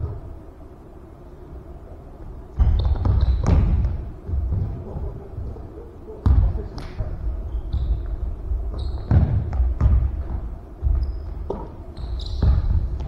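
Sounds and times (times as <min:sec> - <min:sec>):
sneakers squeaking on hardwood floor: 0:02.6 - 0:04.9, 0:07.4 - 0:13.0
basketball bouncing: 0:02.6 - 0:05.0, 0:06.2 - 0:06.9, 0:07.7 - 0:13.0.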